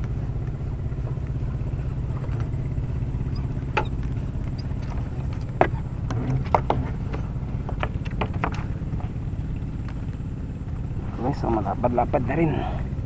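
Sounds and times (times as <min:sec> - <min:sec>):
low engine drone: 0:00.0 - 0:13.0
sharp knocks: 0:03.3 - 0:09.2.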